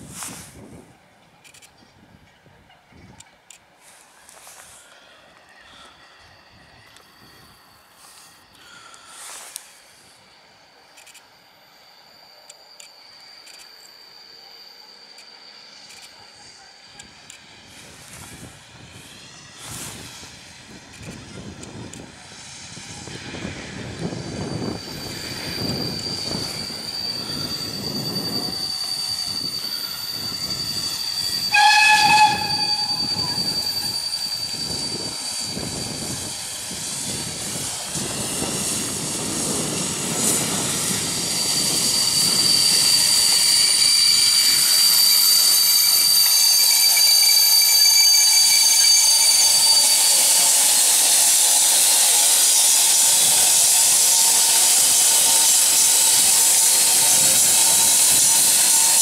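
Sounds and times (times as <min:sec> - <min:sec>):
steam locomotive exhaust chuffs: 0:03.6 - 0:59.0
high metallic squeal: 0:03.8 - 0:21.5, 0:22.3 - 0:59.0
steam hissing: 0:11.8 - 0:59.0
steam whistle blast: 0:25.6 - 0:35.9, 0:41.3 - 0:50.5.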